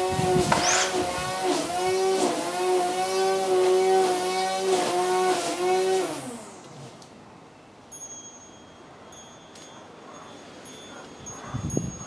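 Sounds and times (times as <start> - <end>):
motor running and winding down: 0.0 - 7.0.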